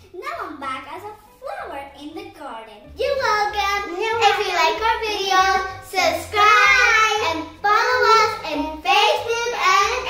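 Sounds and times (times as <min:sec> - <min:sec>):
children singing together: 0:03.3 - 0:10.0.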